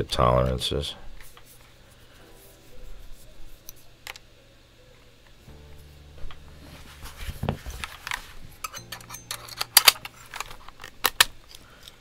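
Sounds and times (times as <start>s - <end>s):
plastic keycap clicks and rattles: 8.1s - 12.0s.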